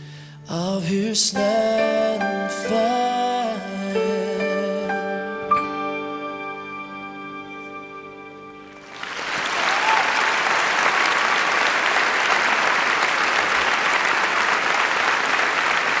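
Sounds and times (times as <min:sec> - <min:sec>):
held music chord: 0:00.5 - 0:08.9
audience applause: 0:08.7 - 0:16.0.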